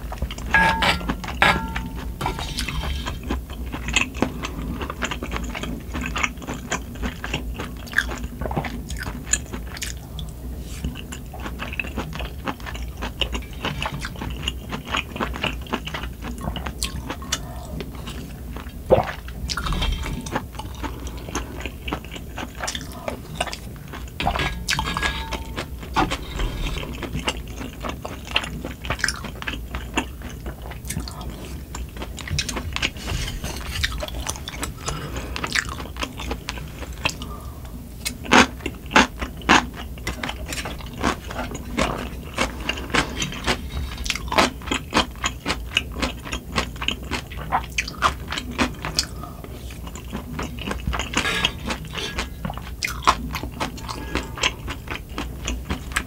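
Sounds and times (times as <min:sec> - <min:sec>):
chewing meat: 0:00.0 - 0:56.0
spoon clicking and scraping: 0:00.3 - 0:03.4, 0:23.5 - 0:27.1, 0:50.4 - 0:56.0
slurping broth: 0:00.5 - 0:05.1, 0:22.5 - 0:27.8, 0:49.0 - 0:56.0.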